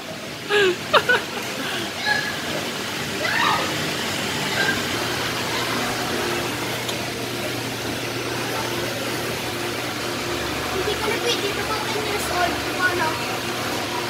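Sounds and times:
ventilation hum and hiss: 0:00.0 - 0:14.0
child's voice: 0:10.7 - 0:13.3.

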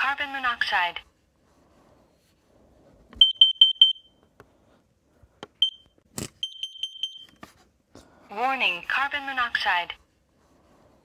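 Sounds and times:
alarm beeping: 0:03.2 - 0:04.2, 0:05.6 - 0:07.3.

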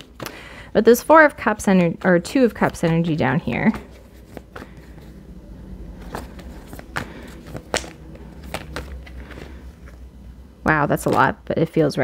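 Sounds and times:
faint low hum: 0:00.0 - 0:12.0
cards being shuffled: 0:01.8 - 0:05.2, 0:05.9 - 0:10.0.

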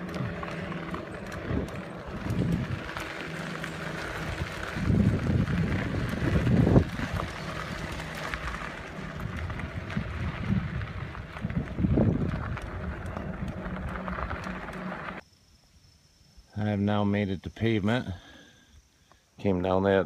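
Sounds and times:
bicycle tyres rumbling on dirt: 0:00.0 - 0:15.2
wind buffeting microphone: 0:00.0 - 0:15.2.

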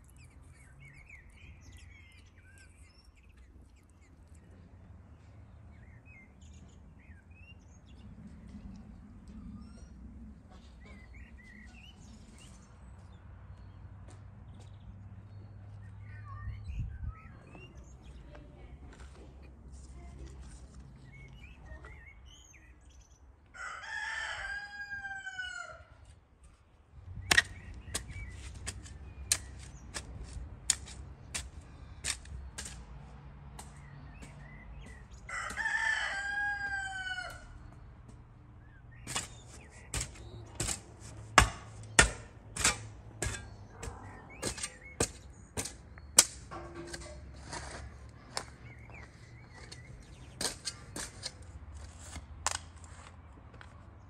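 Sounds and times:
rooster crowing: 0:23.5 - 0:26.0, 0:35.3 - 0:37.6
shovel chopping into soil: 0:27.2 - 0:32.9, 0:39.0 - 0:47.8, 0:49.7 - 0:53.0.

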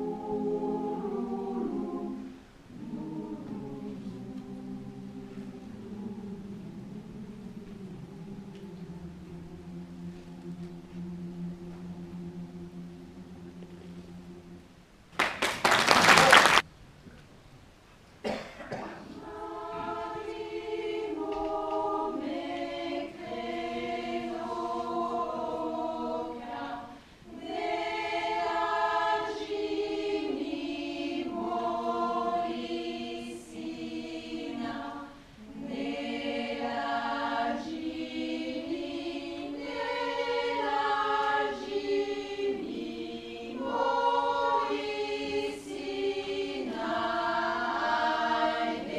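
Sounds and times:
choir singing unaccompanied: 0:00.0 - 0:14.8, 0:19.0 - 0:48.9.

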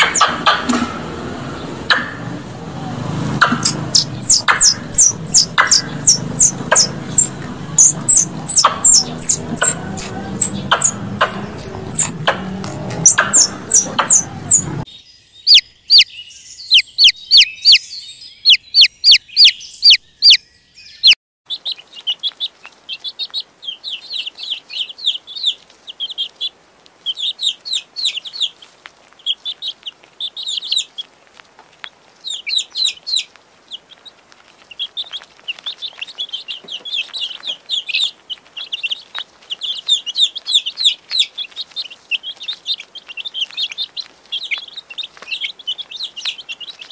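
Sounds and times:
chick peeping: 0:00.0 - 0:20.4, 0:21.0 - 0:46.9
sharp high chirps: 0:03.4 - 0:20.4.

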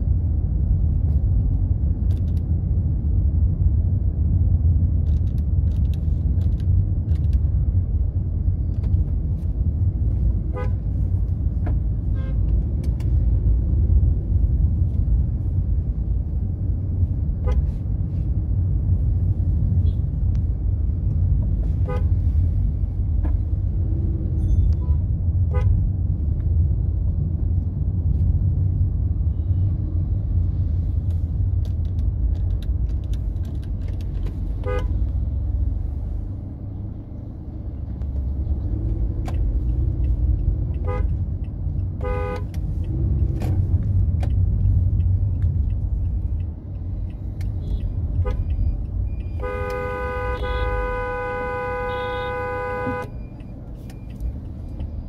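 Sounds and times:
road traffic rumble: 0:00.0 - 0:55.0
vehicle horn toots: 0:34.6 - 0:35.0, 0:40.8 - 0:41.1, 0:42.0 - 0:42.5, 0:49.3 - 0:53.2.

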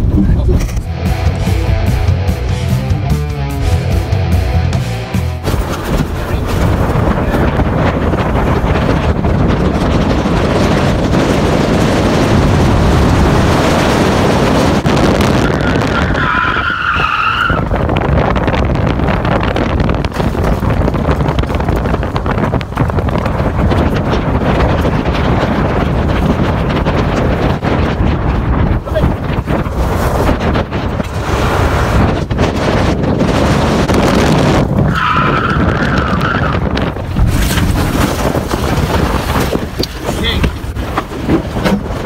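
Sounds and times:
wind rushing over microphone: 0:00.0 - 0:02.4, 0:05.4 - 0:42.0
car engine and tyres on dirt: 0:05.0 - 0:42.0.

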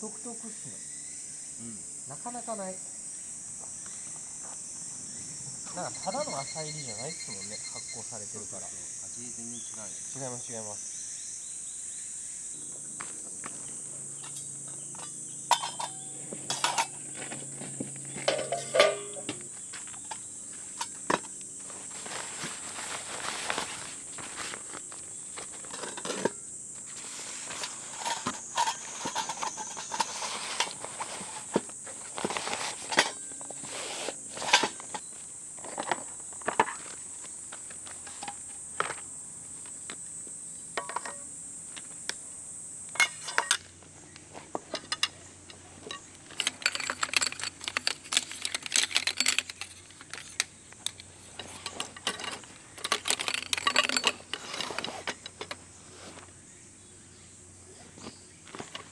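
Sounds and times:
high insect drone: 0:00.0 - 0:58.9
metal furniture legs clicking and rattling: 0:18.2 - 0:21.4, 0:44.6 - 0:55.6.

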